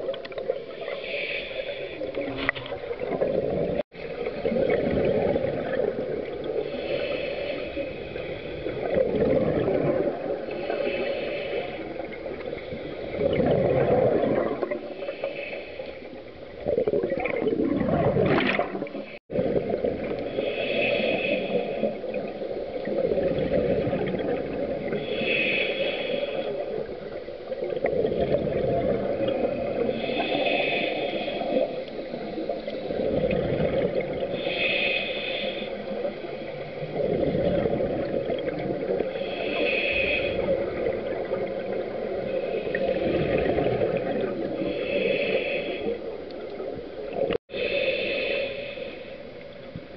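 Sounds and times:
regulator hissing on inhale: 0.7 - 2.5, 6.4 - 9.0, 10.2 - 13.3, 14.7 - 16.6, 20.1 - 23.0, 23.8 - 27.8, 29.6 - 33.2, 34.0 - 37.1, 38.7 - 49.7
exhaled bubbles rumbling: 2.0 - 15.0, 16.2 - 25.2, 26.5 - 34.6, 35.9 - 39.2, 39.9 - 45.2.

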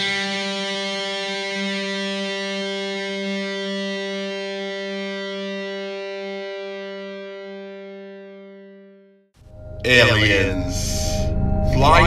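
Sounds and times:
sustained electric guitar note: 9.5 - 12.0.

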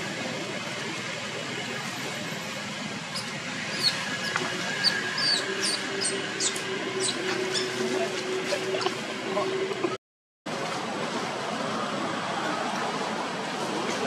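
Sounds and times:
monkeys squealing: 3.1 - 8.1.

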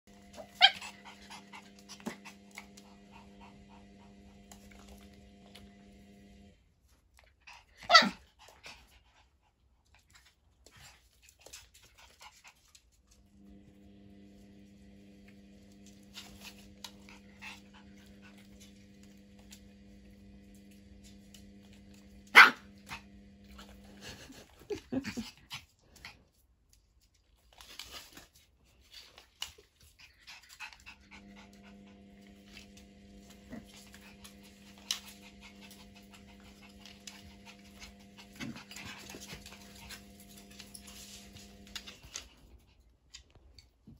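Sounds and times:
dogs scuffling: 27.4 - 42.6.

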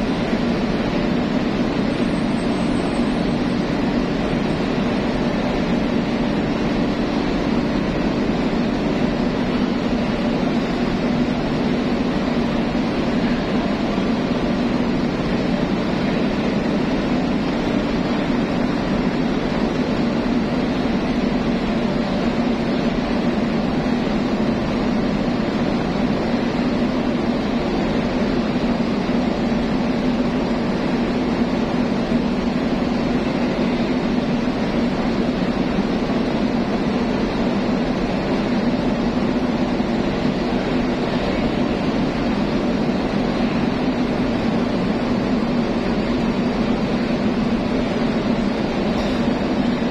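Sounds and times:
ship machinery droning: 0.0 - 21.4.

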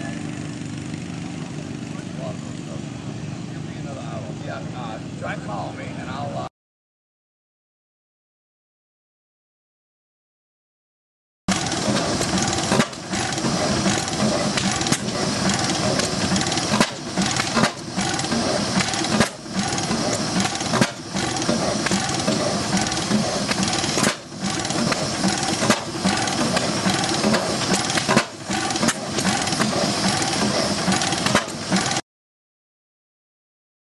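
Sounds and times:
stationary engine clattering: 0.0 - 6.2, 11.5 - 32.0.

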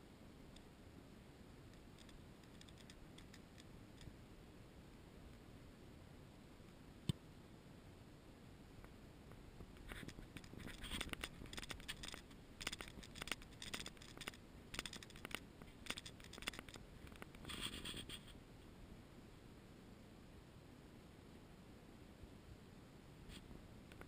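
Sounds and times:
brief rustle: 9.8 - 18.4.

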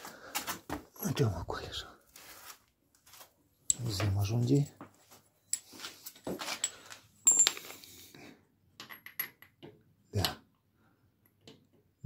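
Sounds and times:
metal tools clinking: 5.4 - 8.0
ringing metal clink: 6.6 - 7.8.

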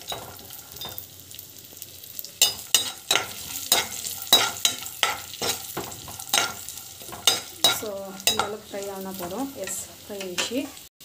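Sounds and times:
nuts frying with soft sizzle: 0.0 - 11.0
spatula scraping a pan: 2.4 - 10.9.

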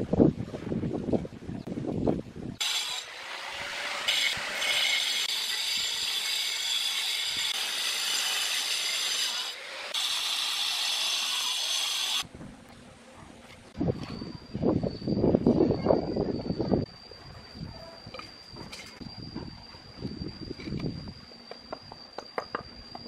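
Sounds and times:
angle grinder cutting stone: 2.6 - 12.2.

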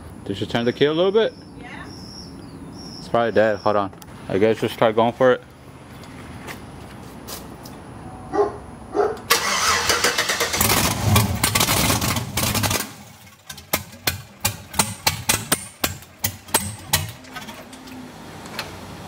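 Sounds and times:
engine cranking and running rough: 9.3 - 18.7
sharp exhaust pops: 10.5 - 17.7.

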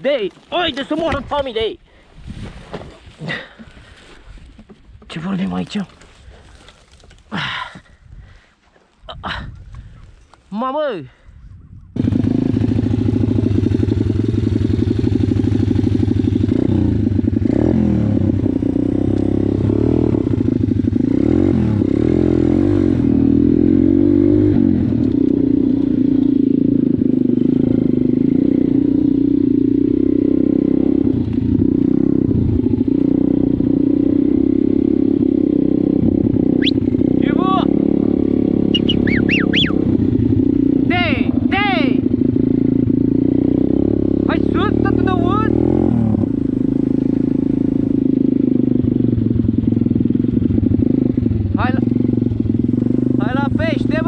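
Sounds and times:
motocross bike engine revving: 12.0 - 54.0.

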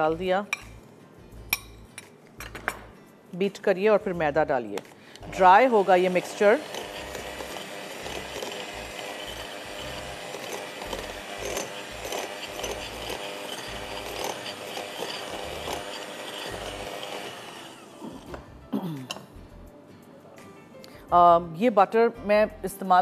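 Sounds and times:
electric hand mixer running: 5.2 - 18.4.

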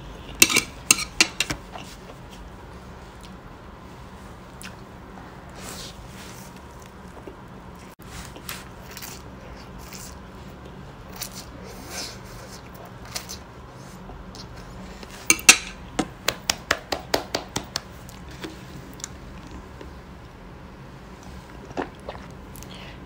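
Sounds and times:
noodles slurped and chewed: 21.2 - 23.0.

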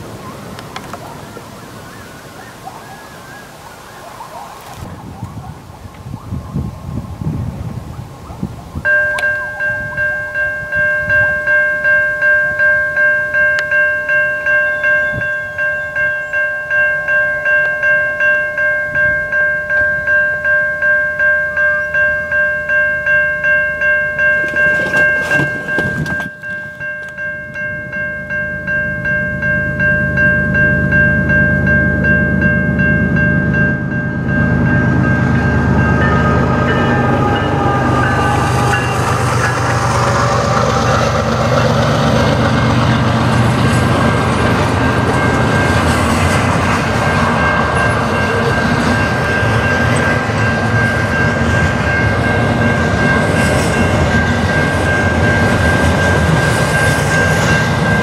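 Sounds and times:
low train rumble: 0.0 - 58.0
level crossing bell ringing: 8.8 - 39.9, 47.0 - 58.0.

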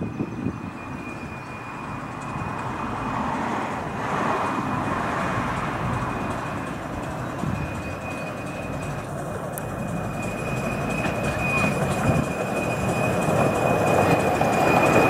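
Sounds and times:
miniature train running on track: 0.0 - 15.0
thin high tone: 6.1 - 15.0.

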